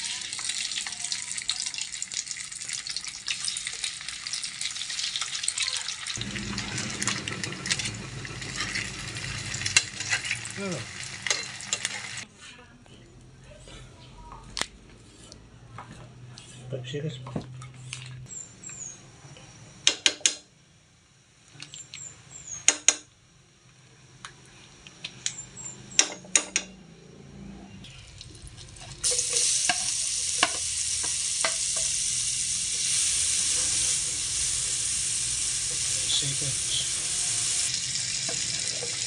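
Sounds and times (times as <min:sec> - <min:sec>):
onions sizzling in a frying pan: 0:00.0 - 0:12.2, 0:27.9 - 0:39.0
kitchen utensils clacking: 0:06.2 - 0:12.2.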